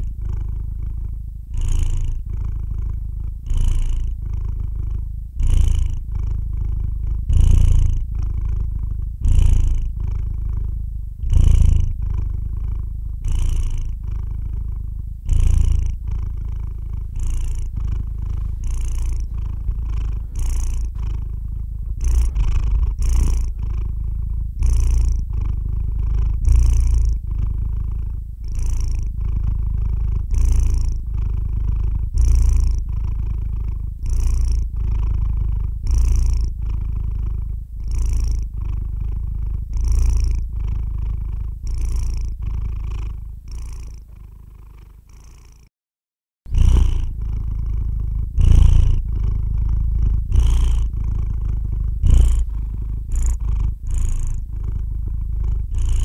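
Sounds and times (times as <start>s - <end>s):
cat purring: 0.0s - 45.7s, 46.5s - 56.0s.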